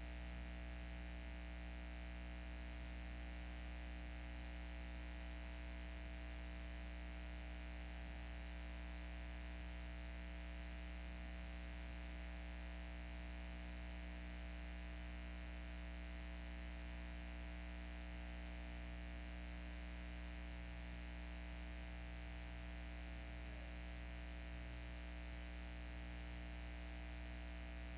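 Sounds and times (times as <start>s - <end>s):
electrical mains hum: 19.4s - 27.9s.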